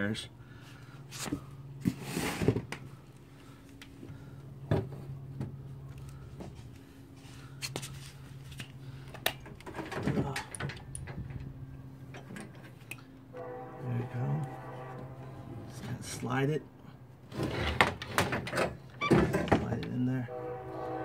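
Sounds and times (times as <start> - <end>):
steady low hum: 0.0 - 19.0
knocks and clunks: 17.3 - 20.0.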